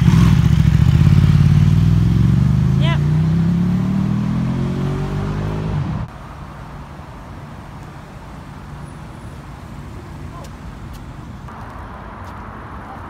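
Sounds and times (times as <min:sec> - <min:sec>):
vehicle engine accelerating: 0:00.0 - 0:06.2
steady traffic noise: 0:00.0 - 0:13.0.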